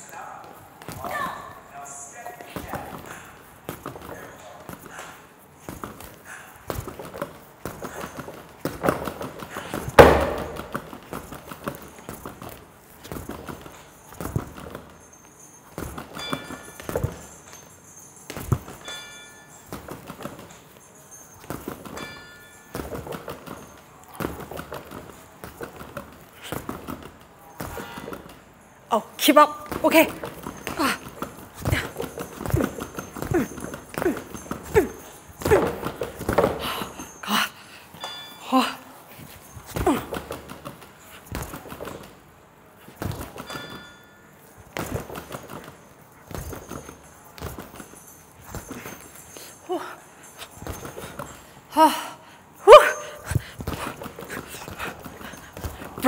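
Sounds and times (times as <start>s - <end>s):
sneakers thumping on hard floor: 5.7s - 14.9s, 29.7s - 37.0s
gloves punching a bag: 5.7s - 15.0s, 21.4s - 28.4s, 29.6s - 37.2s, 39.4s - 42.2s, 42.9s - 44.0s, 44.6s - 51.4s.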